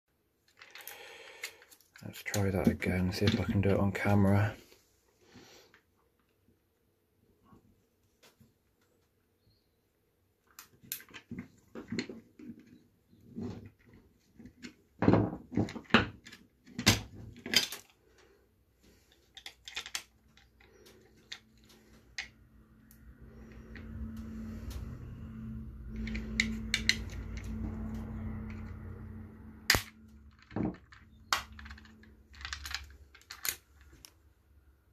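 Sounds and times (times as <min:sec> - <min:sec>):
low steady hum: 0:19.4 - 0:34.9.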